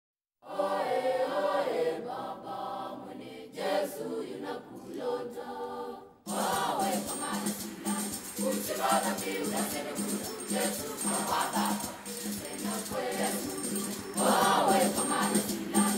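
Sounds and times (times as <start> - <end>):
choir singing: 0.4 - 15.9
music with pulsing beat: 6.3 - 15.9.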